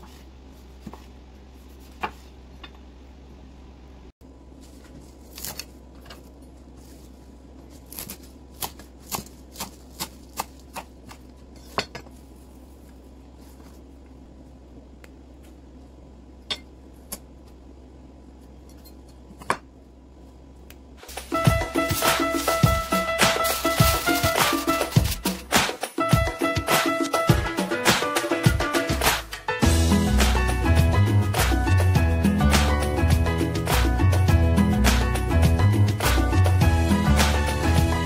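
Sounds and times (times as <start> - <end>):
music: 21.1 - 38.0.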